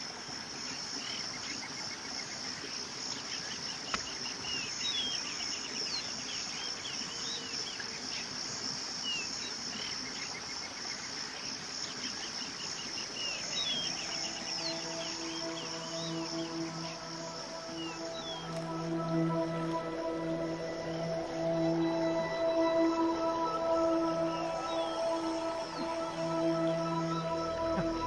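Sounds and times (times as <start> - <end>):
insect chorus: 0.0 - 28.0
bird chirps: 12.0 - 20.1.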